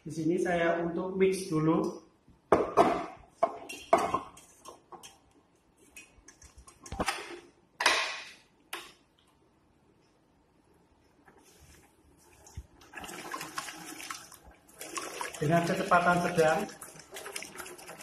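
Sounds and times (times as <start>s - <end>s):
whisk and metal bowl clanking: 3.6s - 5.2s, 15.4s - 18.0s.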